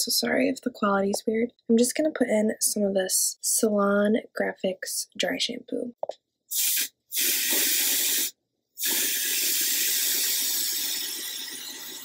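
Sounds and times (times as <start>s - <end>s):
aerosol can spraying: 6.5s - 12.0s.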